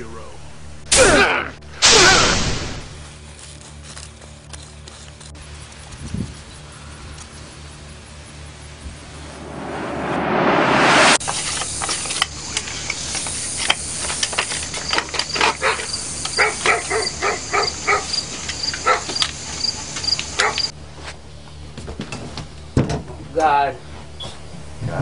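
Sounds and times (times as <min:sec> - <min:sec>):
insects chirping: 0:05.4 - 0:09.4, 0:11.2 - 0:20.7
rising hiss: 0:08.8 - 0:15.0.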